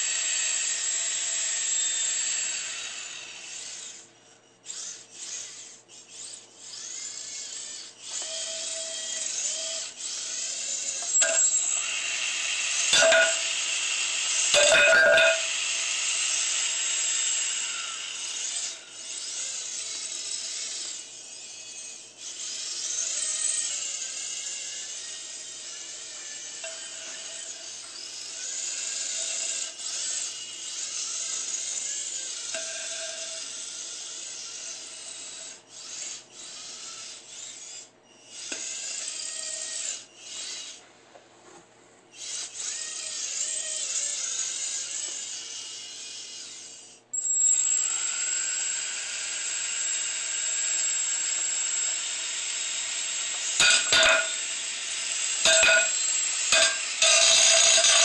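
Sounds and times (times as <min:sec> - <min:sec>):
robot motors whining: 0:00.0 - 0:40.8, 0:42.1 - 0:58.0
spinning disc hitting wood: 0:11.0 - 0:11.9, 0:12.8 - 0:13.8, 0:14.4 - 0:15.6, 0:53.6 - 0:54.5, 0:55.4 - 0:58.0.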